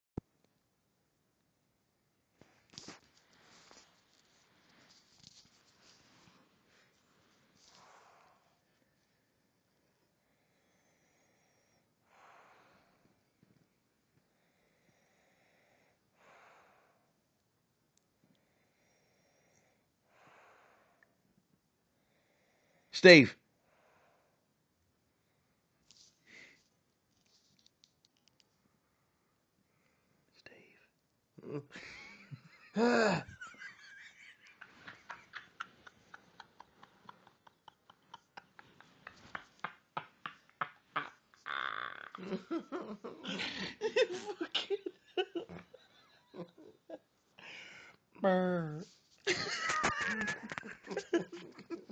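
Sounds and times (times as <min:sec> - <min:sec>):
faint slow breathing: 0:02.4 - 0:09.4, 0:10.1 - 0:17.3, 0:18.2 - 0:21.2, 0:23.5 - 0:26.7.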